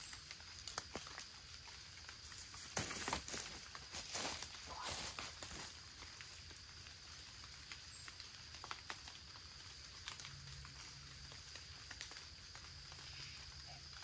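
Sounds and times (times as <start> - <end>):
ticks and rustles in dry leaves: 0.0 - 14.0.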